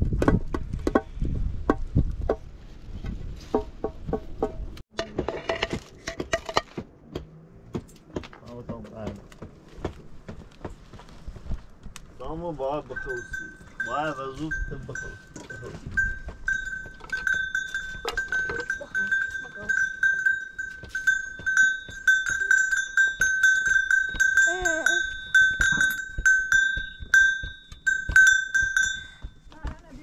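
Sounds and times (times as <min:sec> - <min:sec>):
small metal bell ringing: 0:12.8 - 0:29.5.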